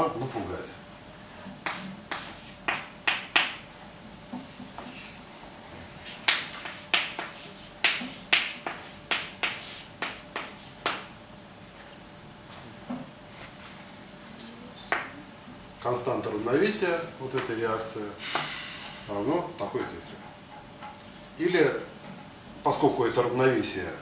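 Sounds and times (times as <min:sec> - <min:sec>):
chalk tapping on blackboard: 0:01.6 - 0:03.6, 0:06.0 - 0:11.1, 0:14.9 - 0:15.1.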